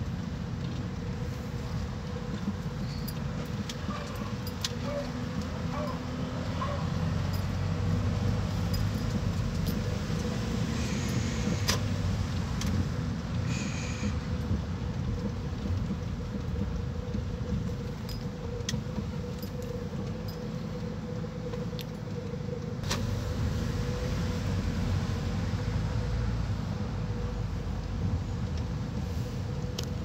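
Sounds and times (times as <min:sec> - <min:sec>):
engine and road rumble: 0:00.0 - 0:30.0
light clicks or jingles: 0:06.6 - 0:10.3.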